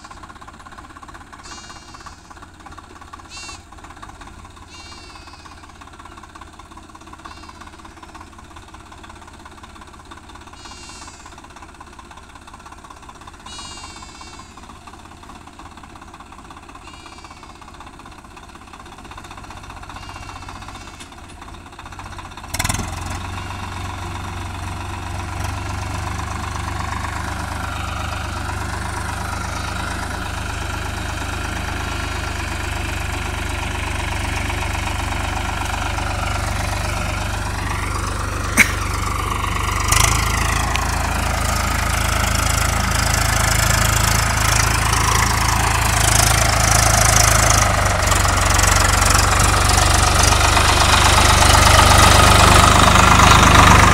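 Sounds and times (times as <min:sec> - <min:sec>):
tractor diesel engine running: 0:00.0 - 0:53.9.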